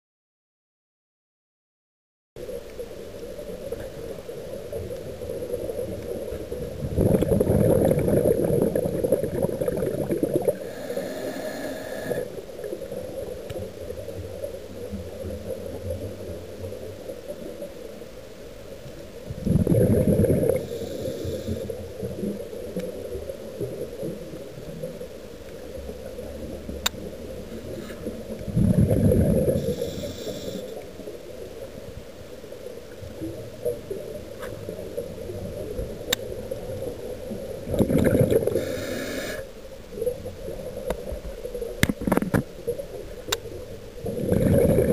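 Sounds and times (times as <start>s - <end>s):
exhaled bubble bursts: 6.8s - 12.3s, 19.4s - 20.8s, 28.5s - 29.8s, 37.6s - 39.4s, 44.0s - 44.9s
regulator hiss: 10.6s - 12.4s, 20.6s - 21.9s, 29.5s - 30.8s, 38.4s - 39.5s.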